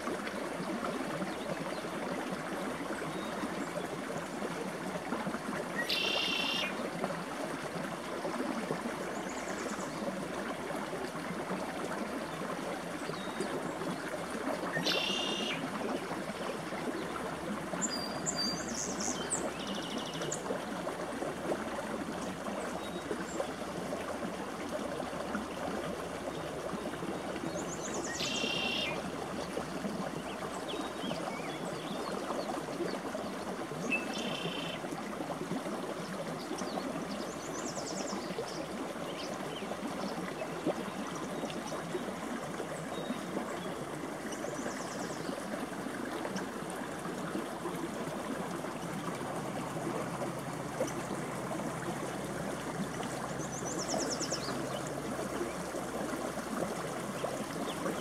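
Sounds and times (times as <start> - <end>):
creek water running: 0.0 - 58.0.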